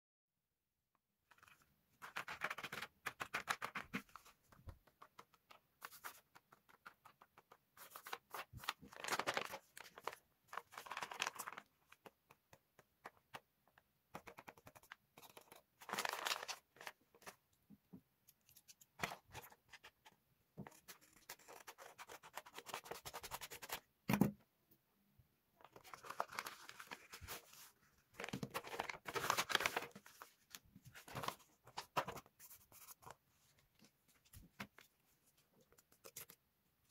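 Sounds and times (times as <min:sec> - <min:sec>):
paper rustling and sliding: 0:25.8 - 0:33.0.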